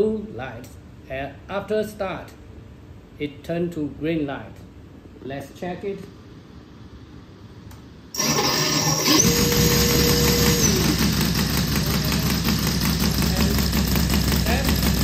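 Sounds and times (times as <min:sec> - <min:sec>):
electric starter whine: 0:08.1 - 0:15.0
engine running: 0:08.2 - 0:15.0.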